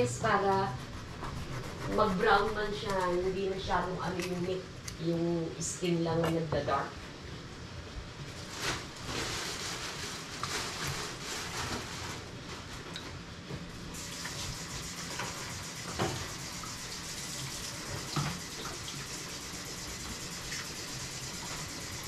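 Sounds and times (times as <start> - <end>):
tap water running into sink: 14.0 - 21.5.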